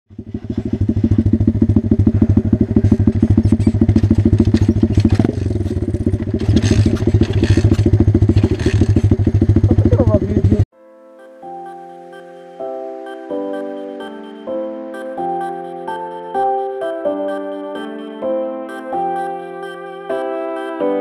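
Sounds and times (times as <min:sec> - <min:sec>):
small motorbike engine idling: 0:00.1 - 0:10.7.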